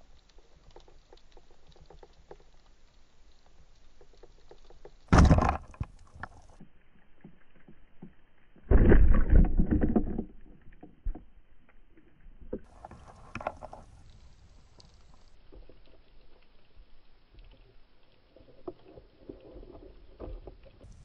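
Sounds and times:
faint clicks: 0:00.0 - 0:05.1, 0:10.4 - 0:21.0
speargun shot thud underwater: 0:05.1 - 0:05.8, 0:08.7 - 0:10.3
fish thrashing underwater: 0:05.1 - 0:06.6, 0:08.0 - 0:11.4.

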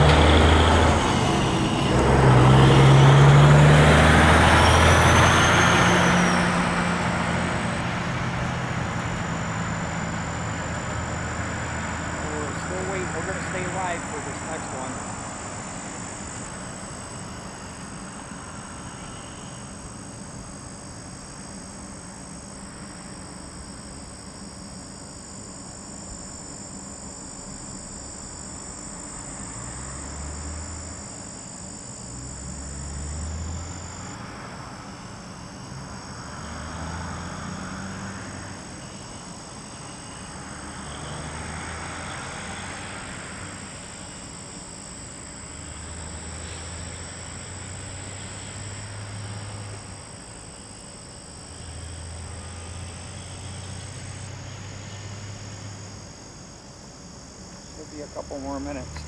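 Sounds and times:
high-pitched insect trill: 0:00.0 - 0:59.0
passing vehicles rumbling: 0:00.0 - 0:59.0.

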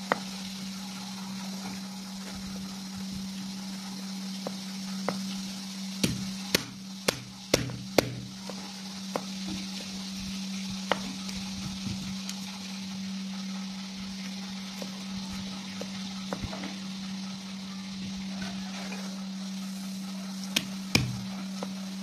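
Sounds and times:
low hum: 0:00.0 - 0:22.0
cleaver chopping on wooden board: 0:06.0 - 0:09.3, 0:20.6 - 0:21.2.

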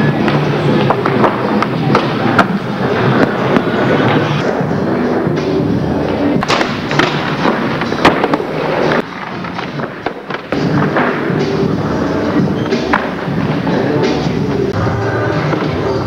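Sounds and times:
music: 0:00.0 - 0:16.0
skateboard pops and landings: 0:06.4 - 0:11.2.

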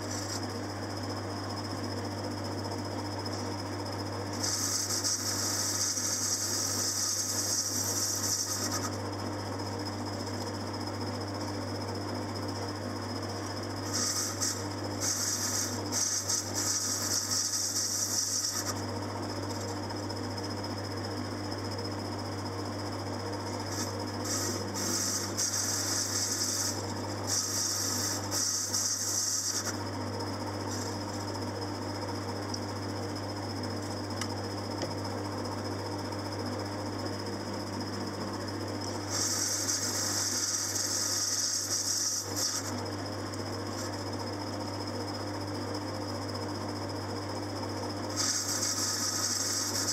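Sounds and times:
lathe motor hum: 0:02.8 - 0:11.6, 0:23.0 - 0:32.1, 0:37.3 - 0:44.8, 0:48.1 - 0:49.9
hiss of metal being cut: 0:04.4 - 0:08.9, 0:13.8 - 0:18.7, 0:23.7 - 0:29.7, 0:39.0 - 0:42.8, 0:48.1 - 0:49.9.

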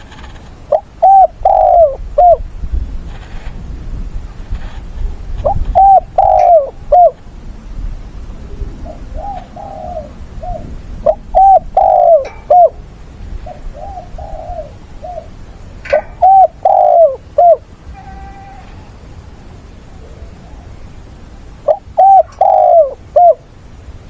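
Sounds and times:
dove cooing: 0:00.1 - 0:02.4, 0:05.4 - 0:07.2, 0:08.4 - 0:19.0, 0:19.9 - 0:23.6.

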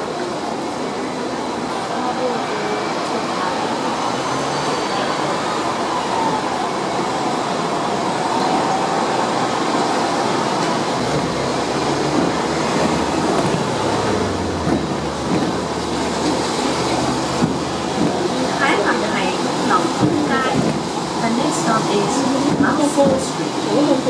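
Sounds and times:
tram wheels rolling on rails: 0:00.0 - 0:24.0.

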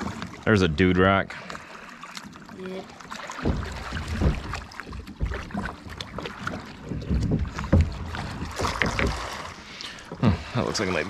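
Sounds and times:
water sloshing around boat: 0:00.0 - 0:11.0
knocks and clatters: 0:03.4 - 0:09.4.

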